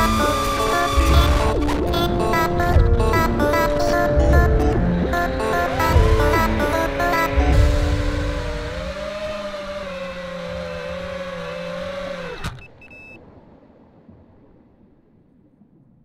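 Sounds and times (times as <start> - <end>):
electronic synth chord: 0.0 - 11.9.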